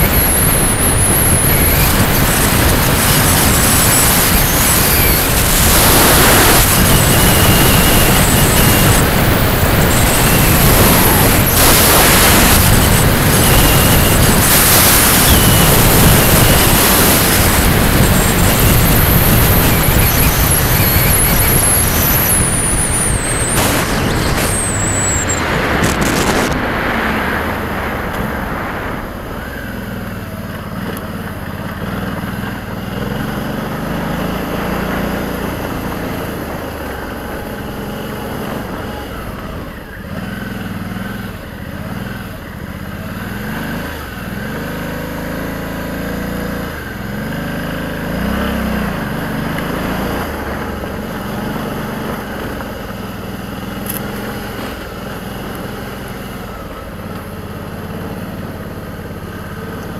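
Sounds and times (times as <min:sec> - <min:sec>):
wind noise on microphone: 0:00.0 - 0:40.4, 0:48.1 - 0:55.0
motorcycle engine revving: 0:00.0 - 0:59.9.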